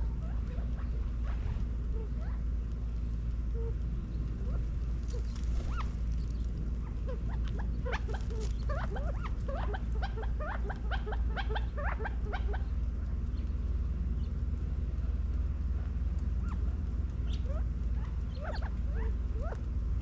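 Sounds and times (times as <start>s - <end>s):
low rumble: 0.0s - 20.0s
quail chirping: 0.1s - 2.4s, 3.5s - 13.6s, 16.3s - 19.7s.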